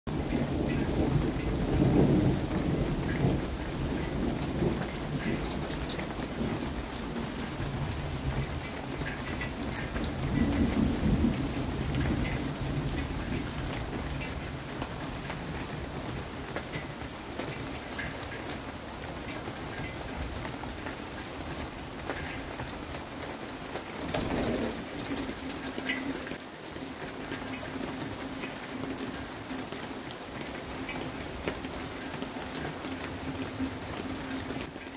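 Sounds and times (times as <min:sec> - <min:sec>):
thunder rumbling: 0:00.1 - 0:18.0, 0:21.8 - 0:29.5
raindrops pattering and dripping: 0:00.1 - 0:34.9
steady rain: 0:00.1 - 0:34.9.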